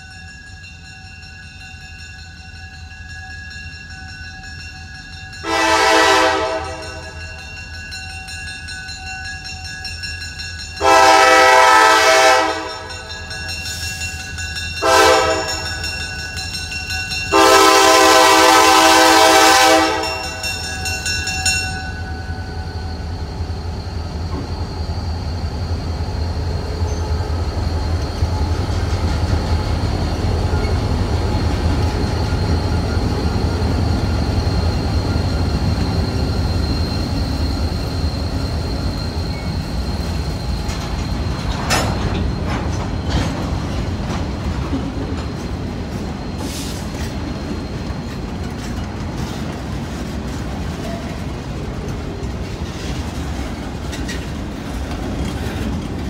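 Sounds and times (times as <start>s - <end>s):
train wheels on rails: 0.0s - 56.0s
locomotive engine rumbling: 4.8s - 56.0s
locomotive air horn blasts: 5.4s - 7.2s, 10.8s - 13.0s, 14.8s - 15.7s, 17.3s - 20.4s.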